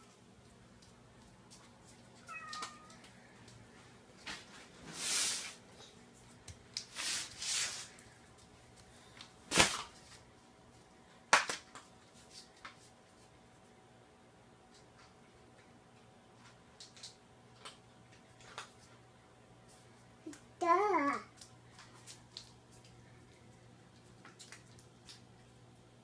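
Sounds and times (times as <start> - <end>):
cat meowing: 2.2 - 3.0.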